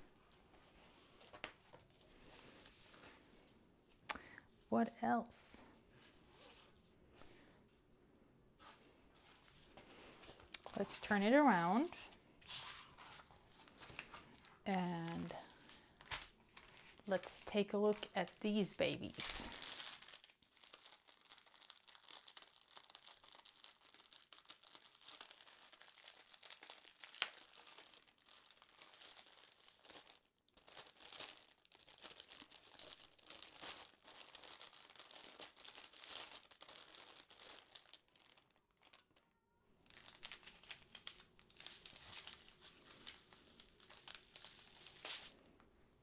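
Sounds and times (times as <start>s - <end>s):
plastic bags crinkling: 9.2s - 12.2s, 13.1s - 45.4s.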